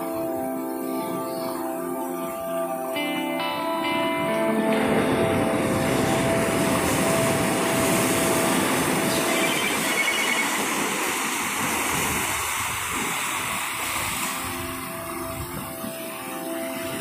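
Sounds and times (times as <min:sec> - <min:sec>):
ocean surf breaking over rocks: 0:04.3 - 0:17.0.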